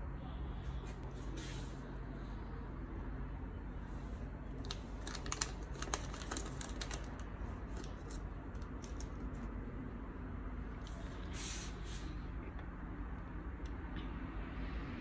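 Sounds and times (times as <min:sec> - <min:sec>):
plastic bag crackling: 0:04.6 - 0:09.5.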